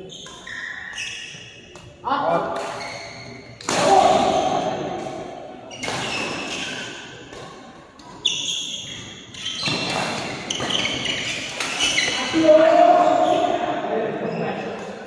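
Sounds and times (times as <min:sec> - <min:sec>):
shoes squeaking on court: 0:00.0 - 0:01.9, 0:02.7 - 0:03.6, 0:05.7 - 0:14.8.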